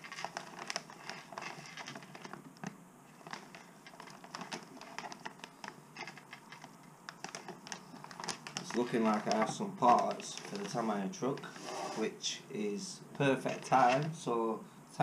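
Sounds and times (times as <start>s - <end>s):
plastic bags crinkling: 0.0s - 11.6s.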